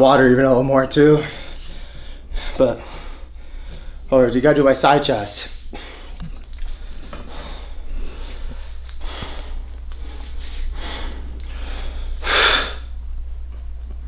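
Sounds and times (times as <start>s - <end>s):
steady low hum: 0.0s - 14.0s
man breathing sharply: 1.1s - 4.1s, 5.6s - 12.9s.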